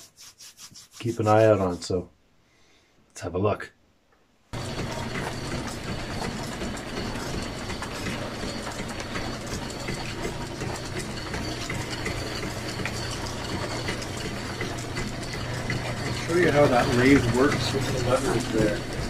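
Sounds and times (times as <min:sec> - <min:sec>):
belts and pulleys clattering: 0:04.6 - 0:19.0.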